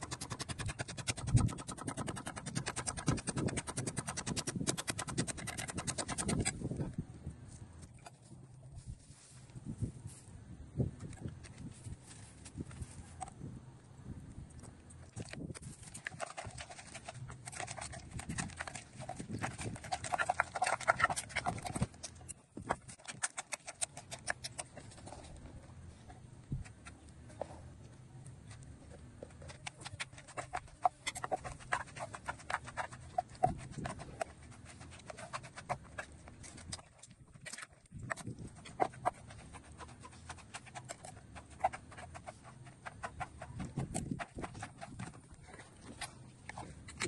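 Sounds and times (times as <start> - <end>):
pestle pounding in clay mortar: 0.0 - 6.5, 16.0 - 24.9, 29.5 - 45.4.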